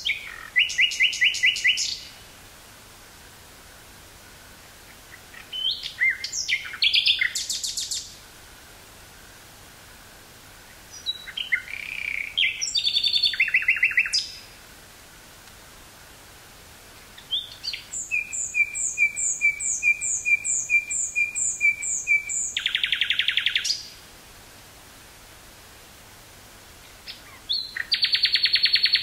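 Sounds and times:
nightingale singing: 0.0s - 2.4s, 4.6s - 8.2s, 10.6s - 14.6s, 17.0s - 24.0s, 26.8s - 29.0s.

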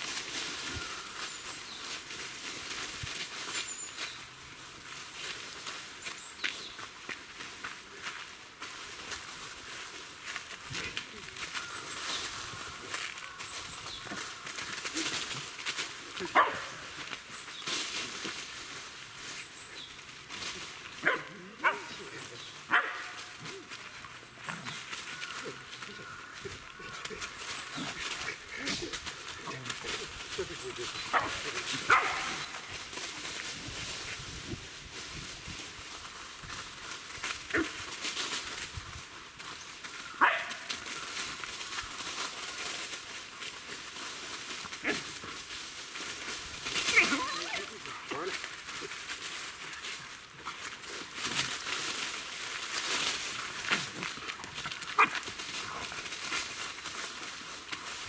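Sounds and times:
paws crunching dry leaves: 0.0s - 58.0s
dog barking: 16.3s - 16.8s, 21.0s - 22.0s, 22.7s - 23.2s, 31.1s - 32.4s, 40.2s - 40.6s.

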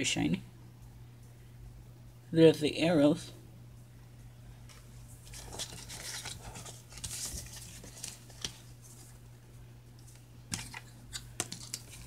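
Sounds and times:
cardboard card rustling: 4.7s - 9.2s, 10.0s - 12.0s.

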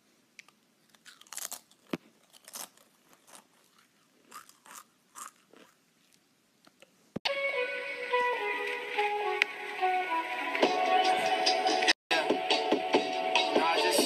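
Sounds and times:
crunching snack chip: 0.8s - 6.2s.

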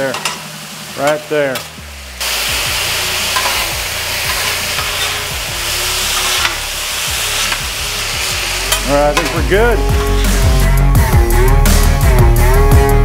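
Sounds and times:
food sizzling on griddle: 0.0s - 12.1s
metal spatulas scraping: 3.3s - 10.8s.

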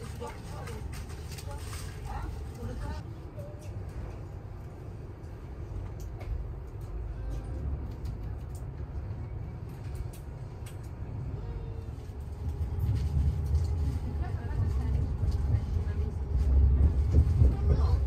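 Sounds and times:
train carriage rumble: 0.0s - 18.0s.

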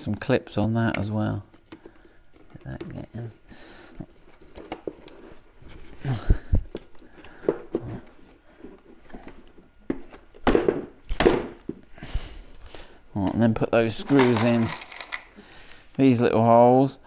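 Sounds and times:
plastic scraping rustles: 13.9s - 15.4s.

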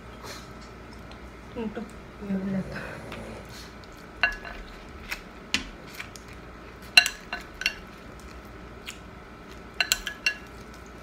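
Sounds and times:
metal spoon clinking against bowl: 4.2s - 4.6s, 6.9s - 7.8s, 9.8s - 10.6s.

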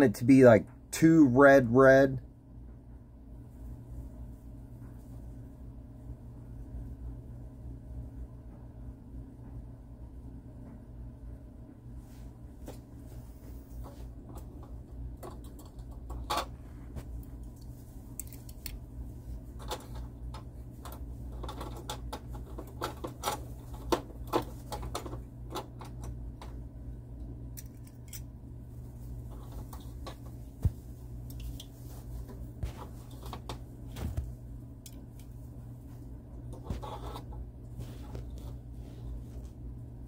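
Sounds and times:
light clicks and taps: 29.3s - 33.6s.

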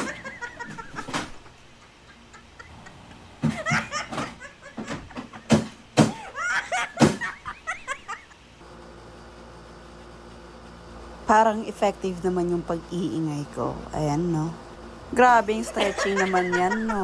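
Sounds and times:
household objects banging: 3.4s - 6.2s.

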